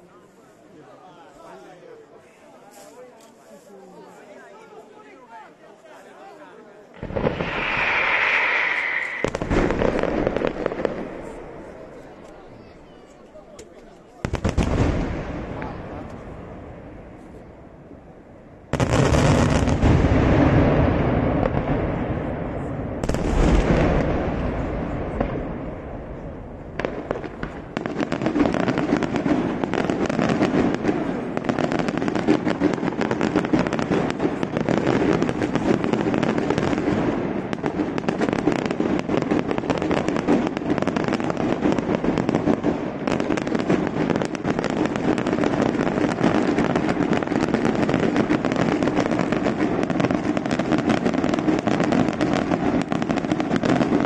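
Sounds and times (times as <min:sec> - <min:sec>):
rapid firework bangs rattling: 0:07.0 - 0:12.2, 0:14.2 - 0:16.8, 0:18.7 - 0:22.4, 0:23.0 - 0:54.0
firework burst: 0:07.0 - 0:12.6, 0:18.7 - 0:54.0.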